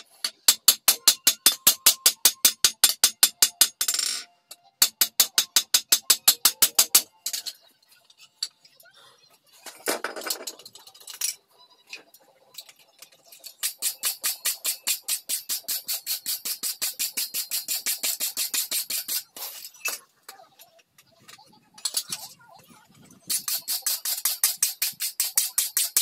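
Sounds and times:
wire brush scrubbing steel: 0:13.4 - 0:19.9, 0:23.2 - 0:26.0.

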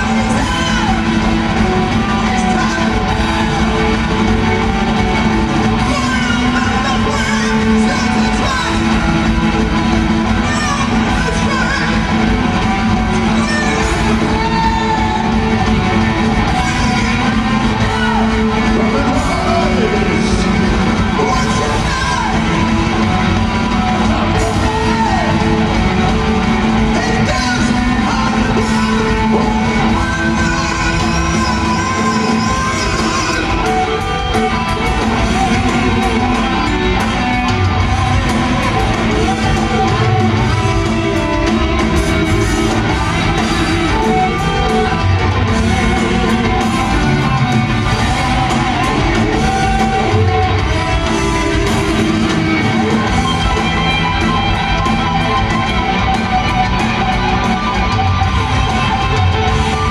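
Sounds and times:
heavy metal band playing: 0:00.0 - 0:59.9
person singing: 0:23.6 - 0:37.4.

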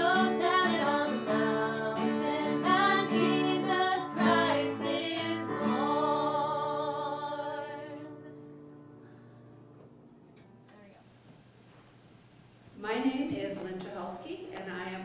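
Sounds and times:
women singing in harmony: 0:00.0 - 0:08.4
acoustic guitar: 0:00.0 - 0:11.0.

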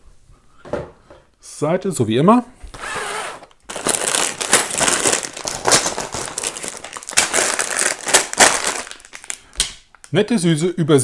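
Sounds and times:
plastic bags crinkling: 0:02.8 - 0:10.2.

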